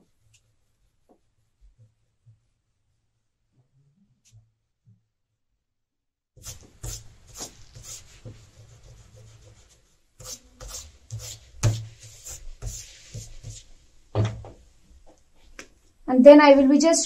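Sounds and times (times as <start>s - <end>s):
eraser rubbing on paper: 6.4s - 13.8s.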